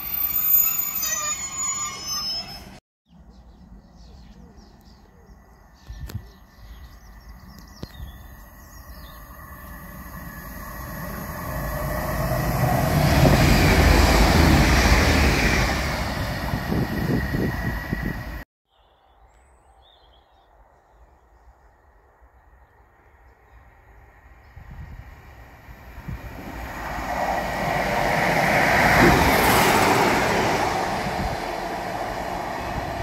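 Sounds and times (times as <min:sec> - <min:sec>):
train rumble and rail noise: 0:06.0 - 0:18.4, 0:22.1 - 0:33.0.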